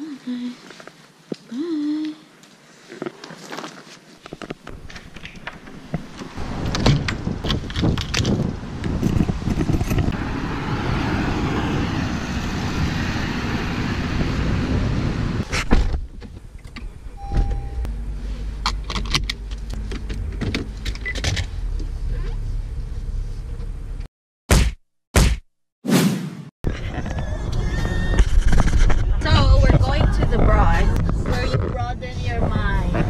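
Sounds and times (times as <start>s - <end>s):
wind on microphone: 6.4s - 15.6s, 26.7s - 33.0s
car door shutting: 15.4s - 17.9s.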